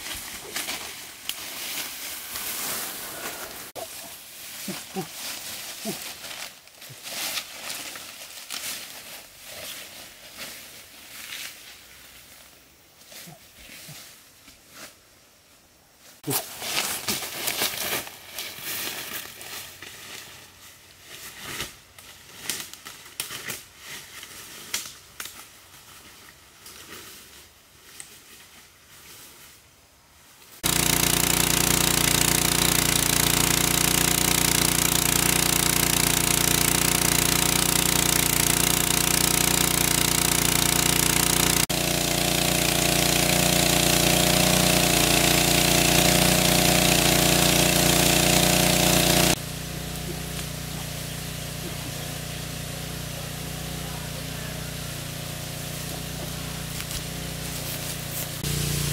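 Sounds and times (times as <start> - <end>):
footsteps through dry leaves: 0.0 - 12.4, 16.3 - 29.6, 49.4 - 58.9
water pump engine running: 30.6 - 58.9.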